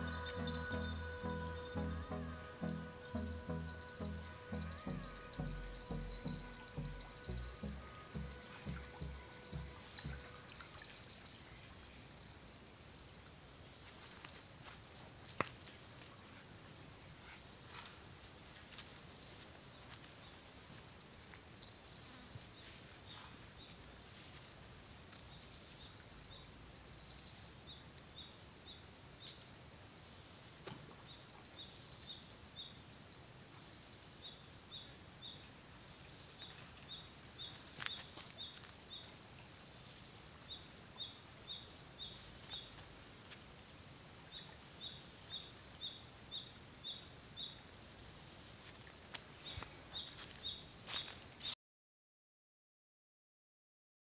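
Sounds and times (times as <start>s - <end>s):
short chirps: 0.0s - 10.7s
high-pitched insect drone: 0.0s - 12.0s.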